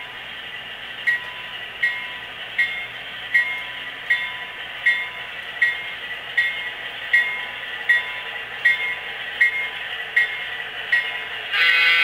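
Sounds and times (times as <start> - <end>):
model train hiss: 11.3 - 12.0.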